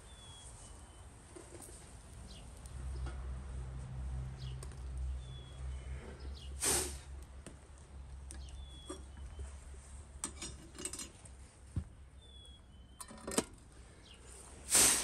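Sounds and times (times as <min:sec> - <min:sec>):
small birds chirping: 0:00.0 - 0:03.1, 0:04.4 - 0:06.6, 0:07.8 - 0:09.7, 0:12.0 - 0:13.1, 0:13.8 - 0:14.5
brief loud hiss: 0:06.6 - 0:07.1, 0:14.7 - 0:15.0.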